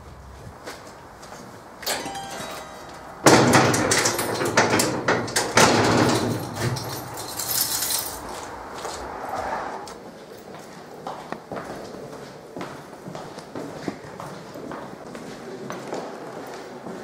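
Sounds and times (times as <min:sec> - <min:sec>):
steel door rattling: 0:03.2 - 0:08.3
metallic knocks and scraping: 0:03.2 - 0:08.4.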